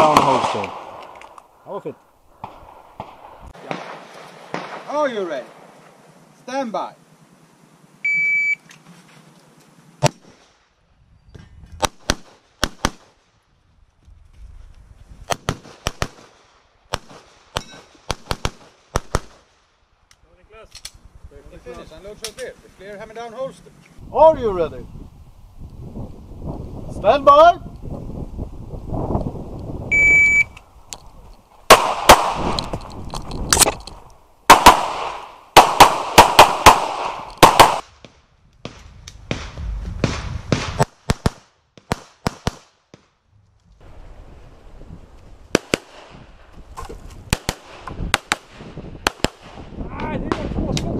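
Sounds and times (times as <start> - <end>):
pistol shots: 0.0 - 1.4, 2.4 - 4.9, 15.3 - 19.5, 31.7 - 32.6, 34.5 - 37.9, 38.7 - 43.0, 47.3 - 49.6
shot timer start beep: 8.1 - 8.6, 29.9 - 30.6.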